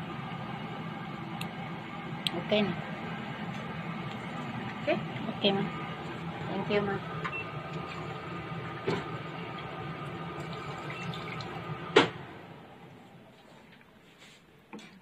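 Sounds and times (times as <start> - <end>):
steady rushing hum: 0.0 - 10.5.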